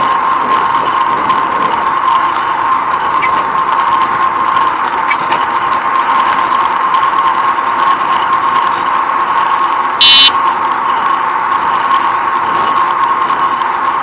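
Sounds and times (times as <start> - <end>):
bicycle mechanical whirr: 0.0 - 14.0
faint short high peeps: 10.0 - 10.3.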